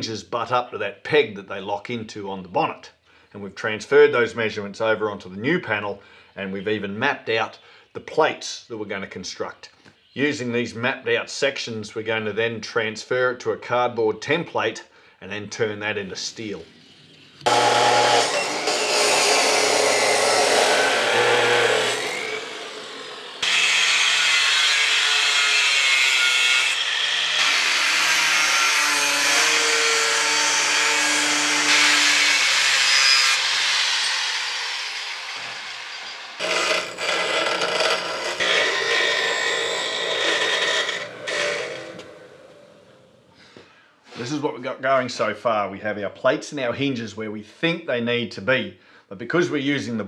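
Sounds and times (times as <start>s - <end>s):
grinder cutting steel: 17.4s - 42.9s.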